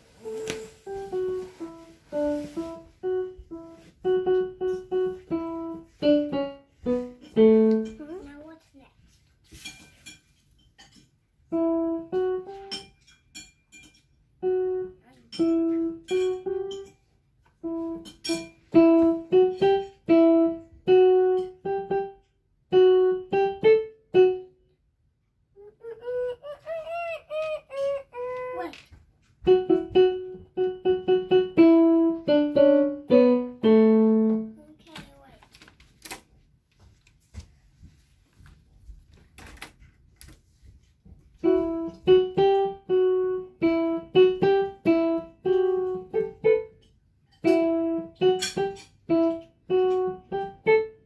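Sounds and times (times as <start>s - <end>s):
digital piano simple melody: 0.0s - 8.2s, 11.5s - 13.1s, 14.4s - 24.6s, 29.4s - 34.6s, 41.4s - 51.0s.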